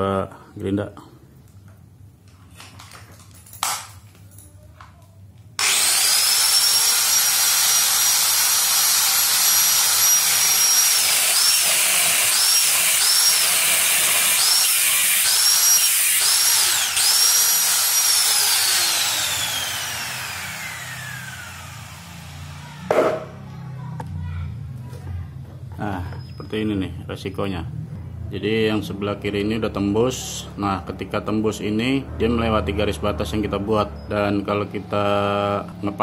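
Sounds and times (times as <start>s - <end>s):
angle grinder cutting steel: 5.6s - 23.4s.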